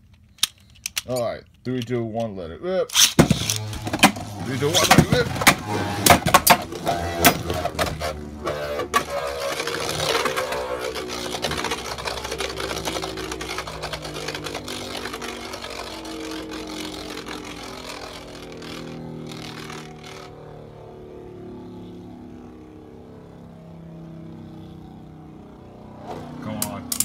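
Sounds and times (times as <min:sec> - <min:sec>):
spinning tops whirring: 0:02.9 - 0:20.7
tops clashing on plastic: 0:03.2 - 0:10.7.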